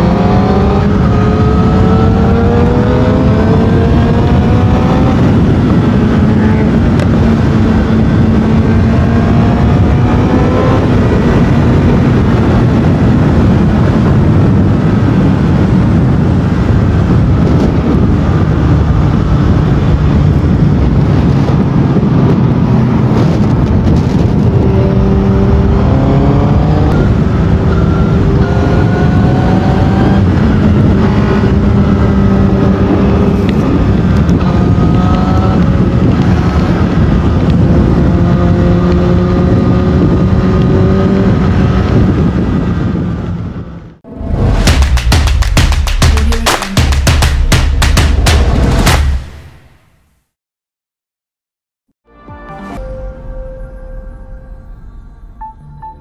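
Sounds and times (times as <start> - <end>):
motorcycle engine revving: 0.0 - 49.6
wind rush over microphone: 0.0 - 49.7.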